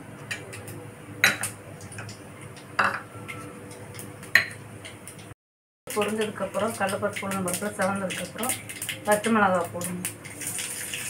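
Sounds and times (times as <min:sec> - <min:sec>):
metal bowls and spoon clinking: 0:02.8 - 0:04.6.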